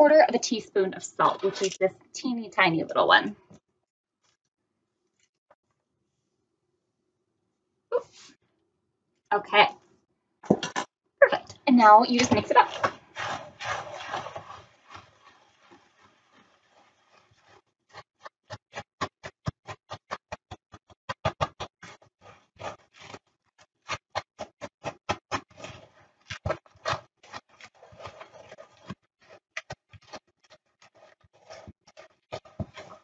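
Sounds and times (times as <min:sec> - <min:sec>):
wooden spoon stirring in bowl: 0:00.1 - 0:03.2, 0:10.4 - 0:33.0.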